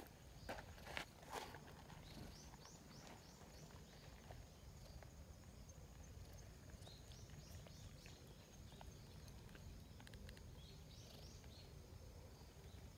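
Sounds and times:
faint high bird chirps: 6.2 - 12.9.

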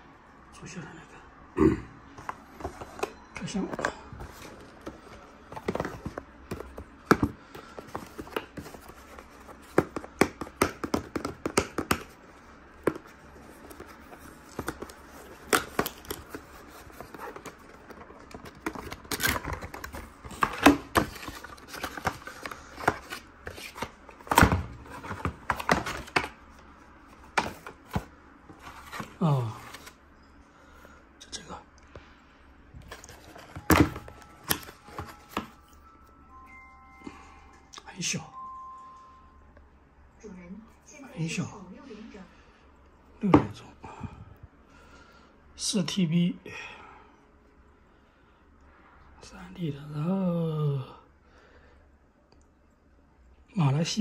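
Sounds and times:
cardboard packaging being opened: 12.8 - 26.4, 32.8 - 35.7.

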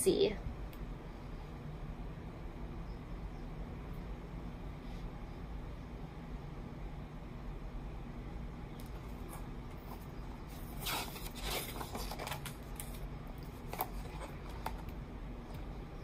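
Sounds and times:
book page turning: 8.8 - 14.8.

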